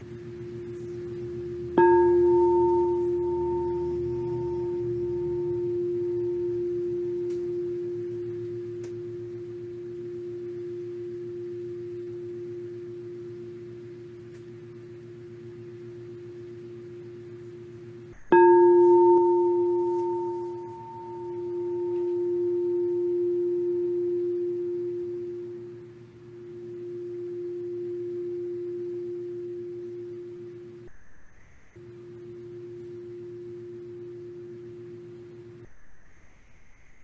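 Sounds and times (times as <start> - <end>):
mallet striking singing bowl: 0.0 - 12.8, 17.5 - 25.8
crystal singing bowl ringing: 0.0 - 36.4.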